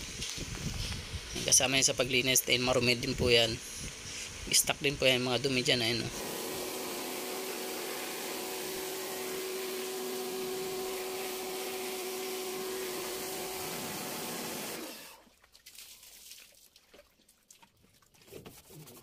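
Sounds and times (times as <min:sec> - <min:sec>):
pressure washer motor humming: 0:05.8 - 0:15.2
water jet hissing: 0:06.1 - 0:15.2.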